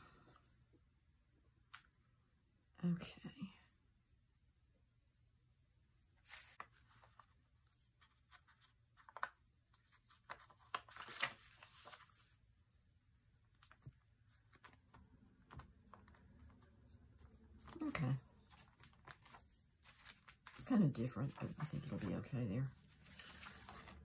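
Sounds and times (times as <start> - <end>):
paper and fabric rustling: 6.2 - 12.5, 13.5 - 24.0.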